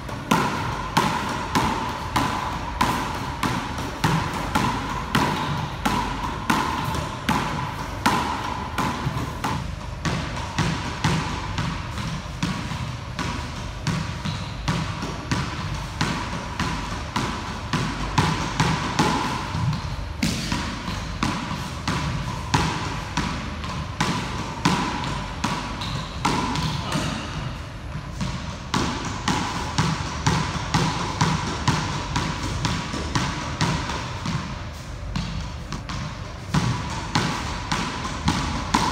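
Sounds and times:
ball smacking wall and floor: 0.0 - 38.9
squash racket striking ball: 0.0 - 38.9.

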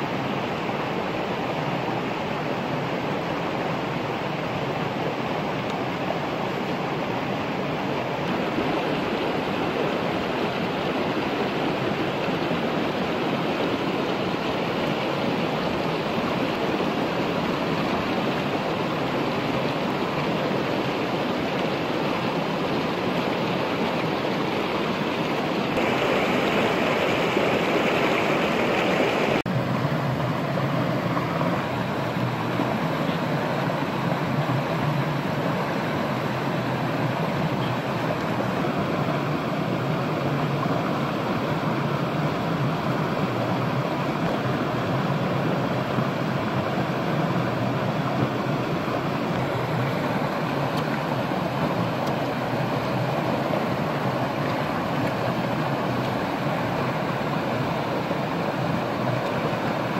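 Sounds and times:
stream flowing over rocks: 0.0 - 59.9.

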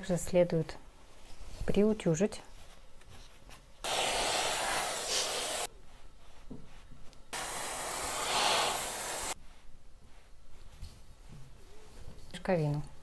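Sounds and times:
steam iron hissing: 3.8 - 5.7, 7.4 - 9.4.

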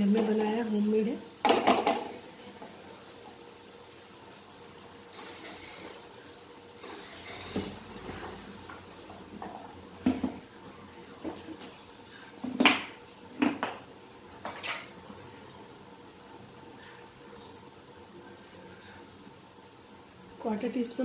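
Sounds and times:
wooden spatula scraping a pan: 5.1 - 6.1, 6.8 - 9.6.

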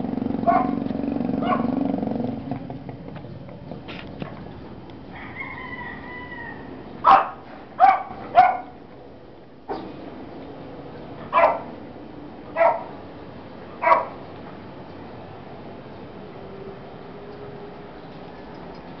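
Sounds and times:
dog barking: 0.4 - 0.8, 1.4 - 1.8, 7.0 - 8.8, 11.3 - 11.7, 12.6 - 12.9, 13.8 - 14.2.

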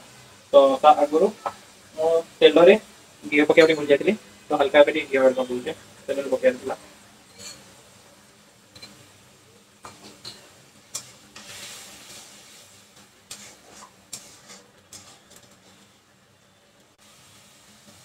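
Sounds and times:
food sizzling: 0.0 - 18.0
metal clinking on pan: 7.3 - 7.7, 8.7 - 9.0, 9.8 - 11.2
spatula scraping a pan: 7.3 - 7.9, 9.8 - 16.1.

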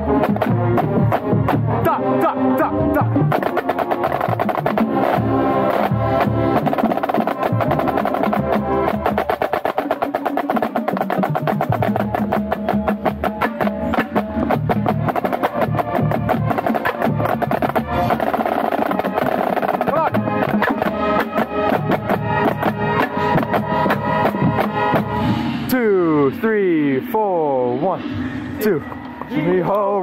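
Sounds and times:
brass and winds holding notes: 0.0 - 30.0
snare drum strokes: 3.3 - 25.9.

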